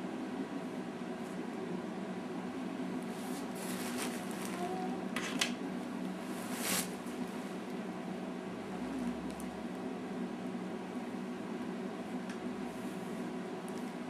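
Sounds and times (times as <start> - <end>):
room hum: 0.0 - 14.0
rustling: 3.1 - 4.8, 6.2 - 7.4.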